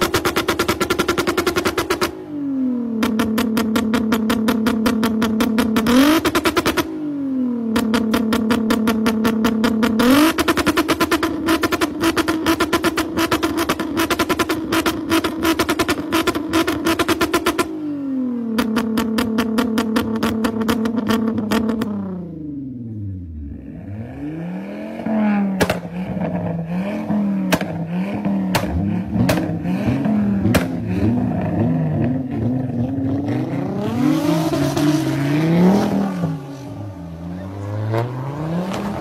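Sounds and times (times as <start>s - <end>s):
car engine revving: 0.0s - 39.0s
exhaust cracks and pops: 18.6s - 21.9s, 25.6s - 26.4s, 27.5s - 29.7s, 30.4s - 30.9s.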